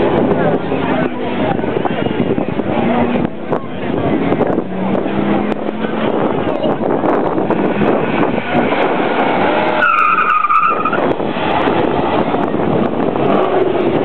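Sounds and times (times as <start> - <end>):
car engine running hard: 0.0 - 14.0
tyres squealing: 8.0 - 11.9.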